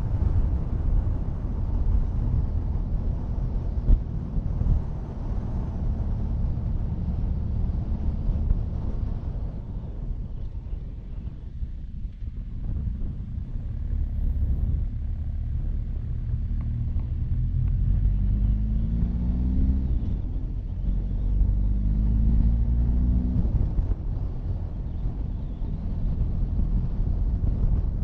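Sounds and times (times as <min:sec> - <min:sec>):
low wind rumble: 0:00.0 - 0:28.0.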